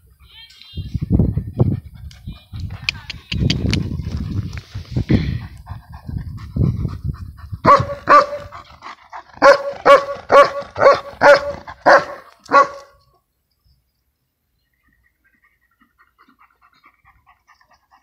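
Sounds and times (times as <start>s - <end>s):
dog barking: 7.6s - 8.5s, 9.4s - 13.0s.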